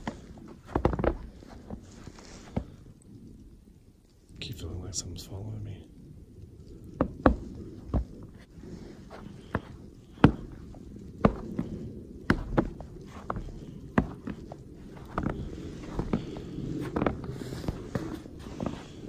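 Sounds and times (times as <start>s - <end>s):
footsteps on snowy bridge deck: 0.0s - 2.9s, 6.8s - 19.0s.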